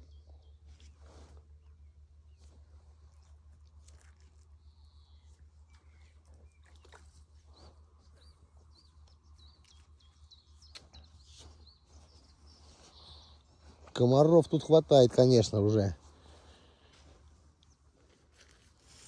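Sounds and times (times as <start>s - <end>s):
low steady hum: 0.0s - 14.2s
bird chirping: 4.6s - 14.0s.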